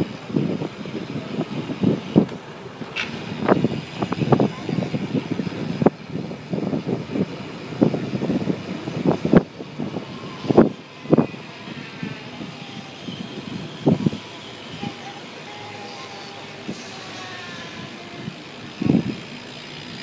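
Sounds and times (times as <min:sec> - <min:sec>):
bicycle rattling over asphalt: 0:00.0 - 0:20.0.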